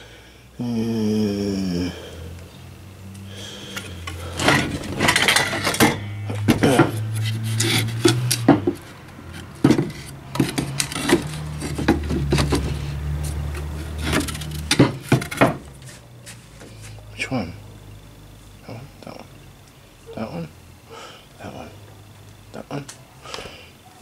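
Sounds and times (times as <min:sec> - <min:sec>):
wooden logs knocking and scraping: 0:04.0 - 0:16.0.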